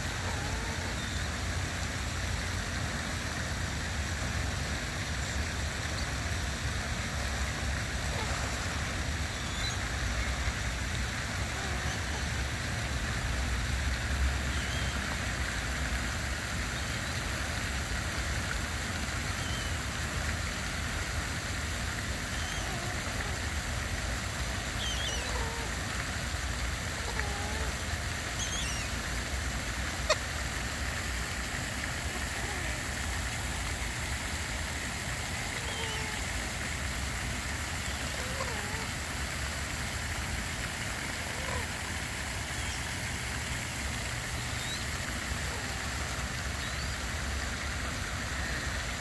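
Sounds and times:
faint bird calls: 8.0s - 10.6s, 22.3s - 23.4s, 24.7s - 25.8s, 26.9s - 29.0s, 35.4s - 36.3s.

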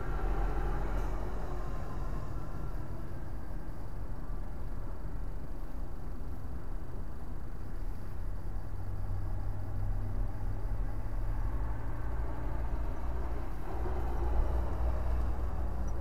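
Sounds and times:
truck engine rumbling: 0.0s - 5.2s, 9.1s - 16.0s
road traffic passing: 0.0s - 16.0s.

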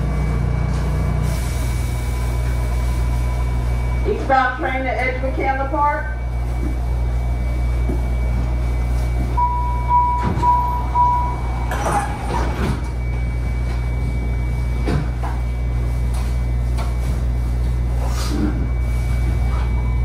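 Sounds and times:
rail car low hum: 0.0s - 20.0s
door warning beeps: 8.0s - 15.9s.

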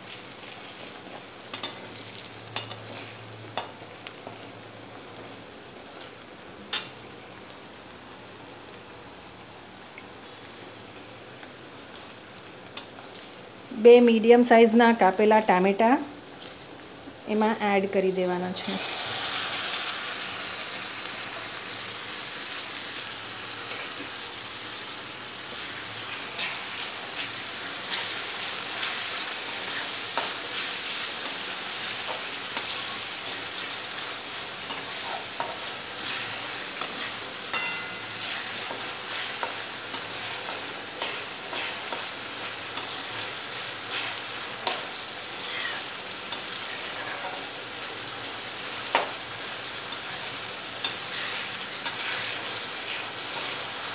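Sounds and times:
tomatoes sizzling in hot oil: 0.0s - 53.9s
metal spatula scraping pan: 45.4s - 45.9s.

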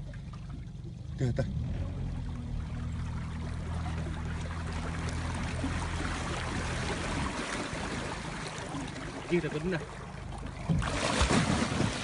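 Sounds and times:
boat motor humming: 0.0s - 12.0s
water rushing and splashing: 0.0s - 12.0s.

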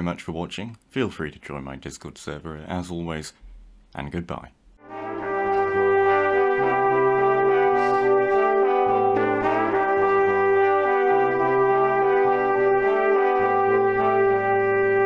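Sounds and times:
brass quartet music: 4.8s - 15.0s.

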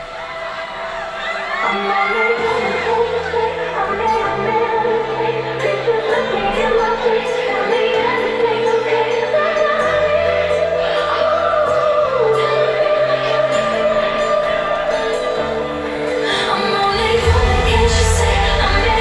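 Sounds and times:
electronic dance music: 16.4s - 19.0s
held bass notes: 16.9s - 19.0s.

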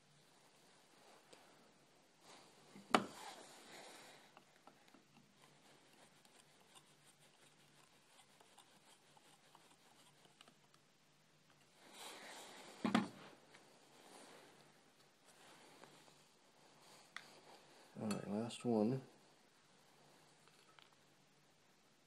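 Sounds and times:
rubbing: 5.3s - 10.6s.

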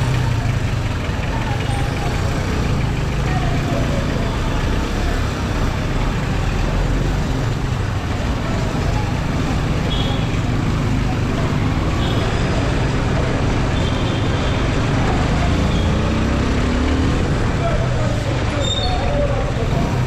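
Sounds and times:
low rumble of traffic engines: 0.0s - 20.0s.

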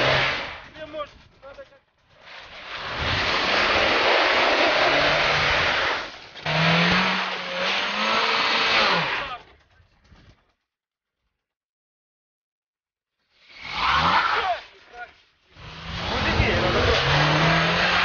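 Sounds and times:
car engine revving hard: 0.0s - 0.6s, 2.9s - 9.3s, 15.6s - 18.0s
wheels spinning in slush: 0.0s - 0.9s, 2.2s - 9.5s, 13.5s - 18.0s.

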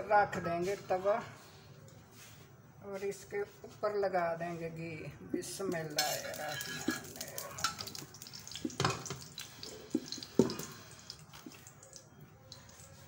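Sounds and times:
metal spoon scraping griddle: 5.9s - 7.9s.

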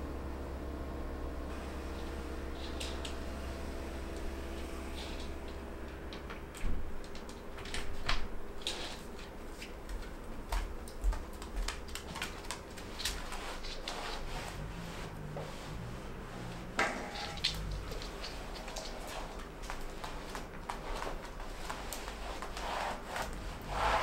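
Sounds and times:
faint steady hum: 0.0s - 24.0s
barefoot steps on wooden floor: 9.7s - 12.5s.

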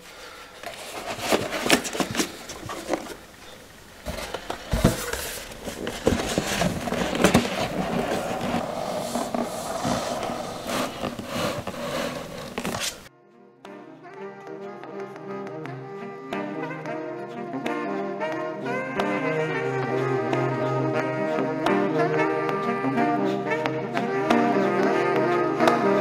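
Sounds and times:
cardboard sliding and scraping: 0.6s - 13.1s.

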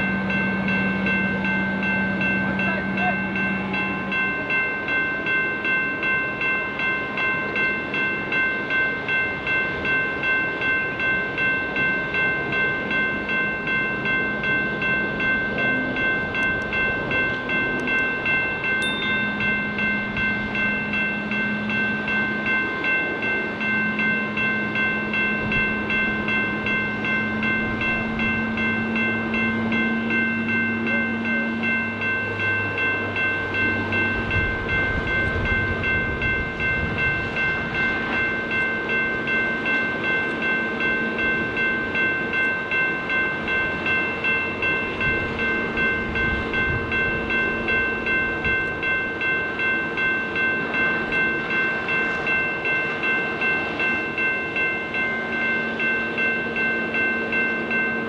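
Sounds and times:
diesel locomotive engine droning: 0.0s - 58.0s
railroad crossing bell ringing: 0.0s - 58.0s.

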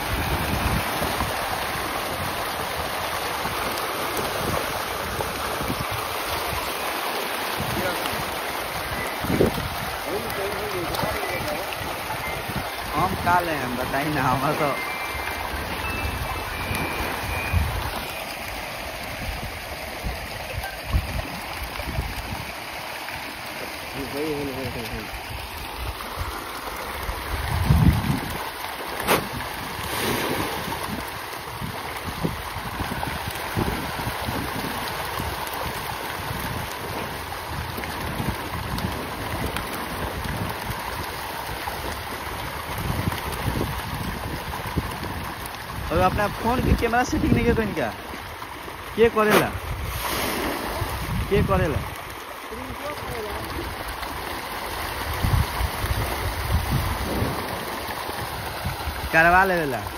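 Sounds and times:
wind buffeting microphone: 0.0s - 6.7s, 7.6s - 18.1s, 27.0s - 48.4s, 49.3s - 52.1s, 54.7s - 59.3s
water churning and splashing: 0.0s - 59.9s
fish thrashing: 14.8s - 18.7s
sharp smack: 29.0s - 29.3s.

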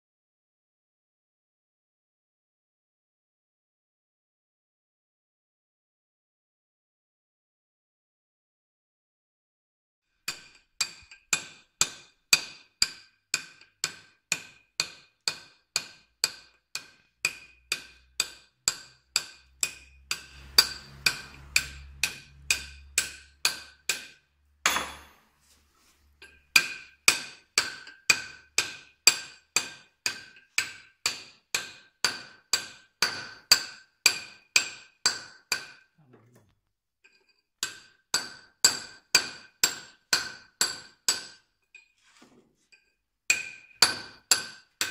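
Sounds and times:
hammer striking chisel on stone: 10.2s - 25.3s, 26.2s - 35.9s, 37.2s - 41.5s, 43.3s - 44.9s
short scrape: 20.0s - 23.4s.

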